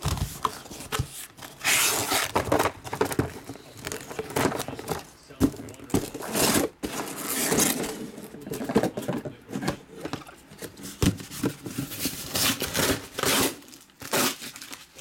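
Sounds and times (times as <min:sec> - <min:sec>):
boxes scraping: 0:00.0 - 0:14.6
cellophane rustling: 0:00.0 - 0:15.0
boxes knocking on table: 0:04.2 - 0:07.7.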